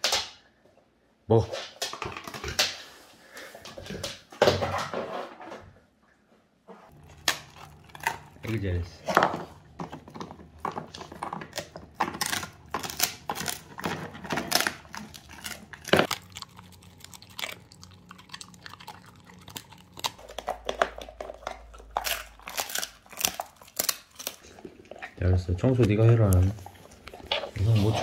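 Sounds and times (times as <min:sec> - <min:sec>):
dog crunching meat chew: 0:06.9 - 0:28.0.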